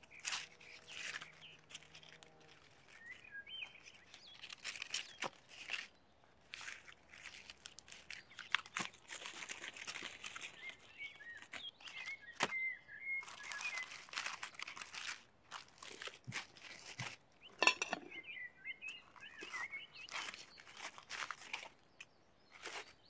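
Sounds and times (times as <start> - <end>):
aluminium foil crinkling: 0.0 - 17.9, 18.9 - 23.0
small bird twittering: 10.3 - 14.1, 17.4 - 23.0.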